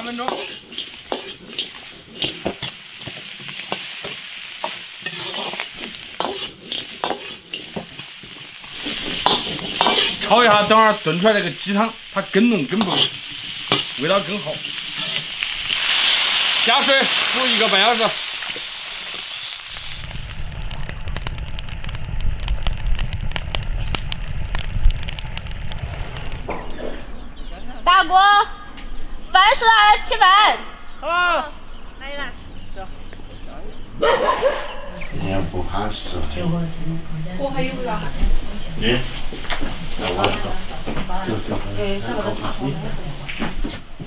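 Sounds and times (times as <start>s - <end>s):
metal ladle scraping a wok: 0.0s - 10.7s, 12.6s - 16.6s
chicken sizzling in hot oil: 0.0s - 26.5s
firewood crackling and popping: 0.0s - 27.6s, 37.4s - 44.0s
low rumble of flames: 0.4s - 15.8s, 18.0s - 27.9s.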